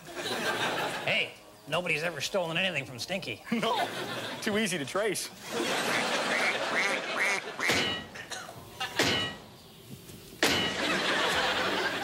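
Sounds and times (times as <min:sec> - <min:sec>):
honking laugh: 0:05.4 - 0:07.7, 0:10.7 - 0:12.0
knocks: 0:07.7 - 0:08.1.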